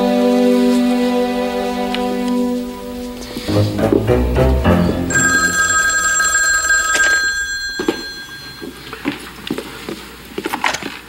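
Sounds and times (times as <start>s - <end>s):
soft background music: 0.0s - 5.8s
telephone ringing: 5.1s - 9.2s.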